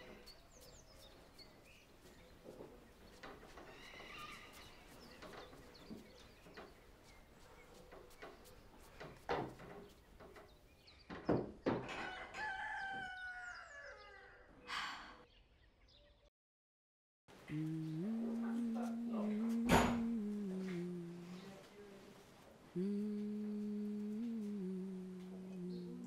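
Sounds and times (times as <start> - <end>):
rooster crowing: 12.0 - 14.6.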